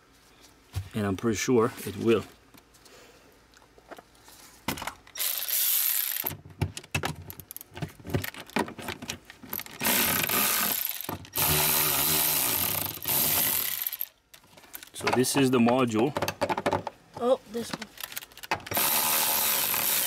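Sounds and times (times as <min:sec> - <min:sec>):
electric ratchet motor whining: 0:05.2 - 0:06.3, 0:09.8 - 0:14.1, 0:18.7 - 0:20.0
handling clicks and rattles: 0:06.1 - 0:09.9, 0:17.7 - 0:18.8.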